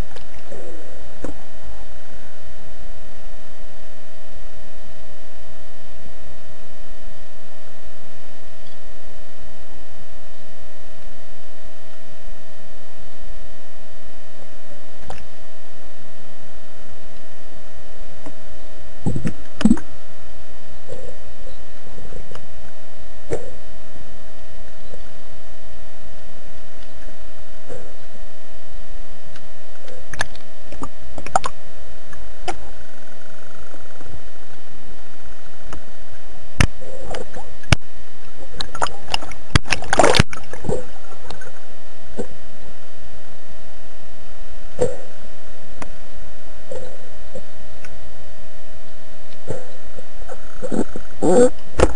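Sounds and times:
steady underwater hiss: 0.0s - 3.4s, 16.4s - 51.9s
electronic hum: 0.0s - 51.9s
sharp underwater clicks: 30.1s - 32.6s, 38.6s - 41.5s
bubbling burst: 38.7s - 41.2s.

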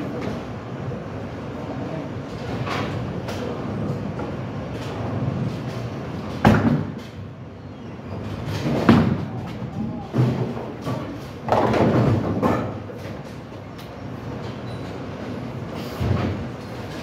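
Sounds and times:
rumble of balls rolling on lanes: 2.1s - 17.0s
bowling pins clattering: 8.1s - 13.4s.

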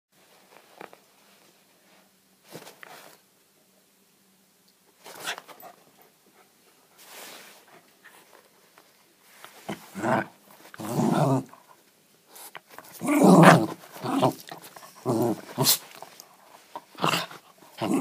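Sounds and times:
dog and hand scuffling on carpet: 0.2s - 3.2s, 6.9s - 11.5s, 12.3s - 18.0s.

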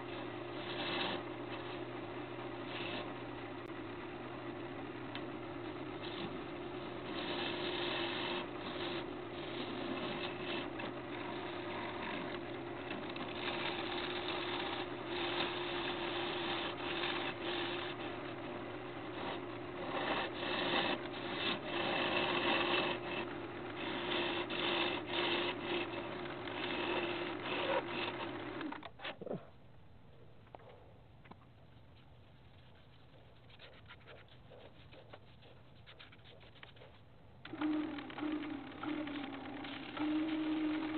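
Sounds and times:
gouge cutting wood: 0.0s - 3.4s, 5.1s - 28.8s, 35.1s - 40.9s
wood lathe humming: 0.0s - 28.8s, 37.4s - 40.9s.

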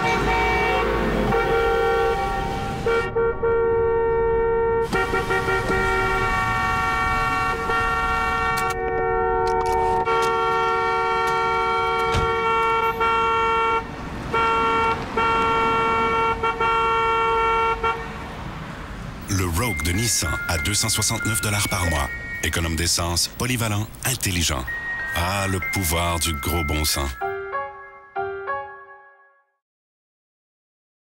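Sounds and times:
car horns blaring: 0.0s - 18.4s.

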